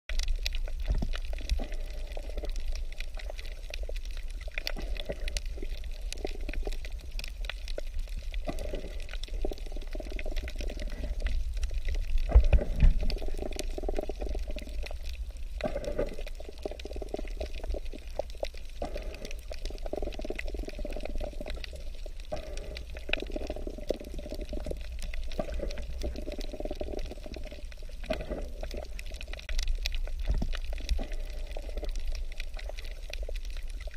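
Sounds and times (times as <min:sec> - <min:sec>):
low underwater rumble: 0:00.1 - 0:33.9
small underwater clicks: 0:00.1 - 0:33.9
underwater bubbling: 0:00.1 - 0:33.9.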